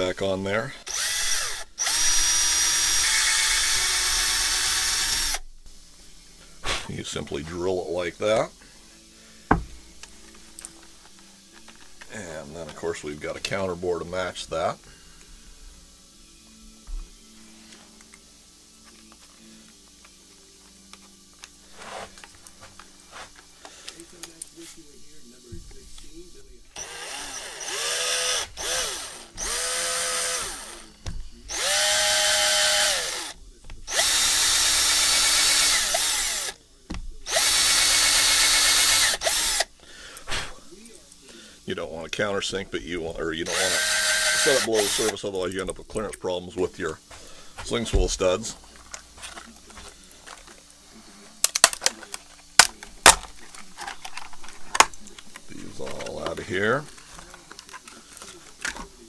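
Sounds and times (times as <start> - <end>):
cordless drill whining: 0.8 - 5.4, 26.8 - 36.6, 37.2 - 39.8, 43.4 - 45.2.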